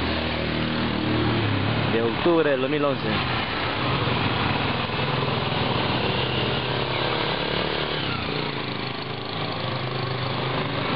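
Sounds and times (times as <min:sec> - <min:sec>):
motorcycles passing: 0:00.0 - 0:10.9
street traffic noise: 0:00.0 - 0:10.9.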